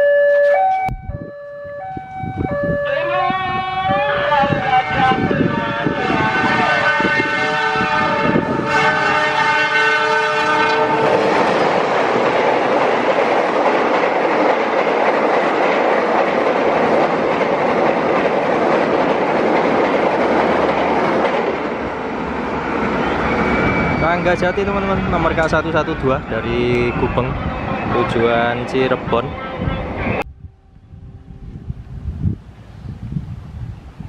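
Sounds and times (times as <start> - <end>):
train coaches rumbling past: 2.2 - 34.0
locomotive horn chord: 2.8 - 11.6.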